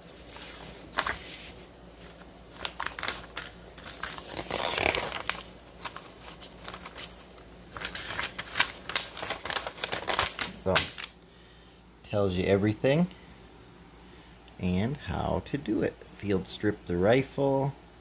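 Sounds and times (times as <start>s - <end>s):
paper rustling and crackling: 0.0s - 11.1s.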